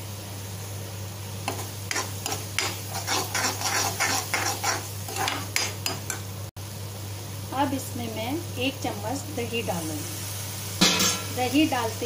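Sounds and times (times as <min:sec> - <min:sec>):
spatula scraping in a pan: 0:01.4 - 0:06.2.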